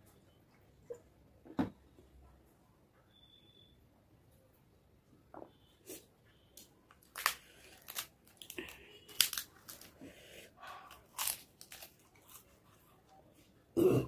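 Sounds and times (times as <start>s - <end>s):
crisp papad crunching: 6.9s - 10.0s, 10.7s - 12.8s.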